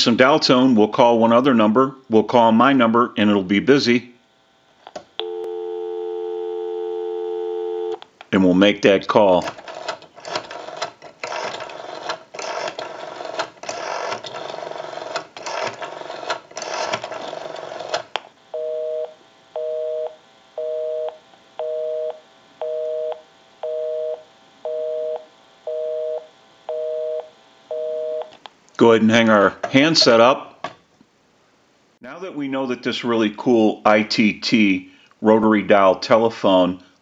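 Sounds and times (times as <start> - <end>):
rotary phone dial clicking: 9.4 - 18.1.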